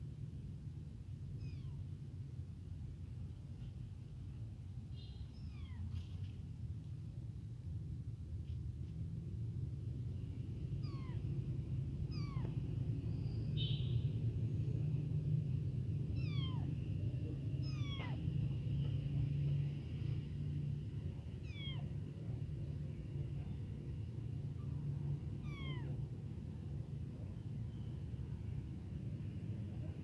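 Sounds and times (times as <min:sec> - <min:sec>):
steady low rumble: 0:00.0 - 0:30.0
kitten mewing: 0:01.4 - 0:01.8, 0:05.4 - 0:05.9, 0:10.8 - 0:11.2, 0:12.0 - 0:12.6, 0:16.2 - 0:16.8, 0:17.5 - 0:18.4, 0:21.4 - 0:22.0, 0:25.4 - 0:26.0.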